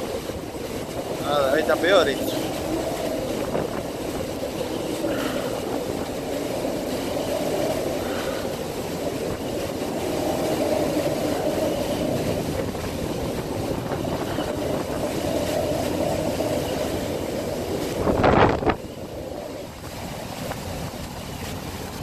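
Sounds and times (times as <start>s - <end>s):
rough water: 0.0s - 22.0s
wind: 0.0s - 22.0s
wind buffeting microphone: 0.0s - 22.0s.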